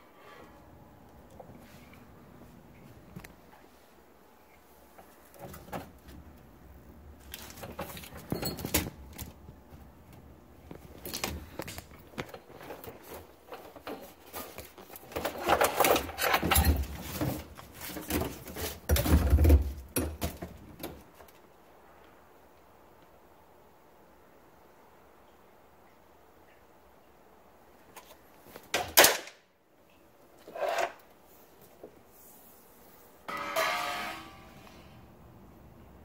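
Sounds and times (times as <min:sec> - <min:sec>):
rustling scraping and clicks: 0:10.7 - 0:19.3.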